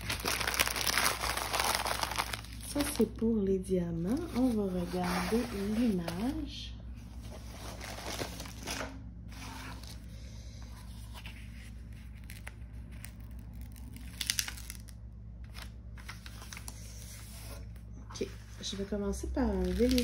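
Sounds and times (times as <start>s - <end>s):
plastic film crinkling: 0.0s - 3.2s, 11.3s - 16.8s, 19.4s - 20.0s
steady low hum: 0.0s - 20.0s.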